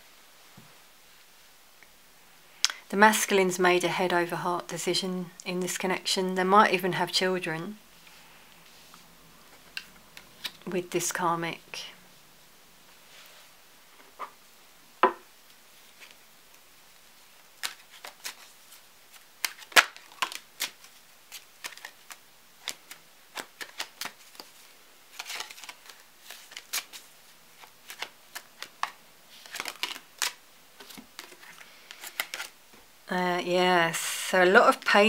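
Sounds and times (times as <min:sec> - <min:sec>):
cards shuffling and snapping: 0:09.6 - 0:10.7, 0:17.4 - 0:32.6.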